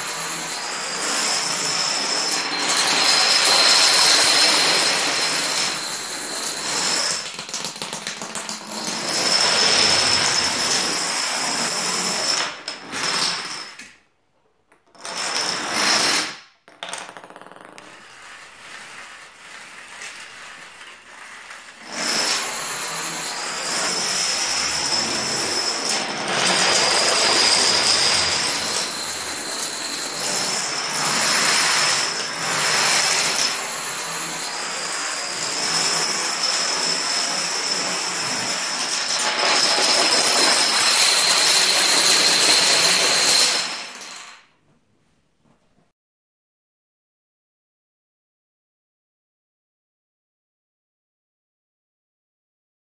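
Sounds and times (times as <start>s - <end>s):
dominoes clattering: 0.4s - 11.1s, 14.9s - 22.8s, 23.8s - 33.7s, 38.0s - 44.5s.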